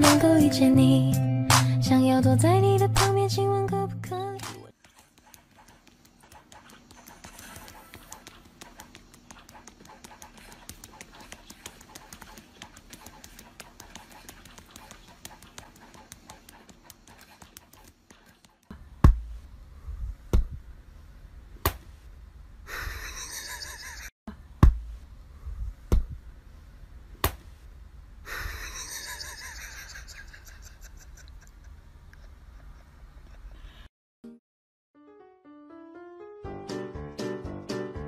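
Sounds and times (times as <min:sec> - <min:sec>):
dog panting: 0:04.8 - 0:18.5
sharp thumps: 0:19.0 - 0:19.4, 0:24.6 - 0:25.0, 0:25.8 - 0:26.2.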